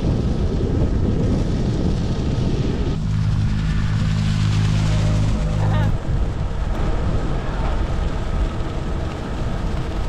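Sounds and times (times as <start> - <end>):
wind noise on microphone: 0.0 - 10.0
low motor hum: 0.2 - 10.0.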